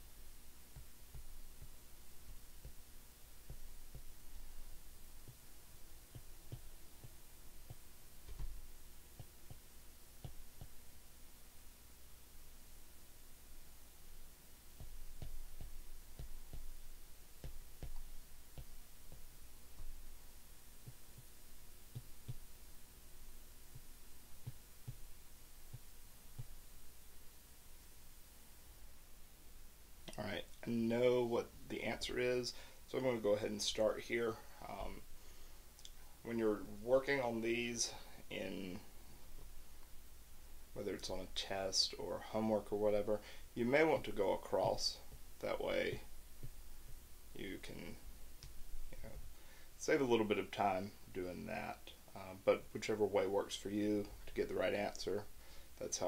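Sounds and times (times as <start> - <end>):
low steady hum: 0.0 - 56.0
stylus tapping on screen: 0.7 - 5.4, 6.1 - 10.8, 14.8 - 20.1, 20.8 - 22.5, 23.7 - 26.6.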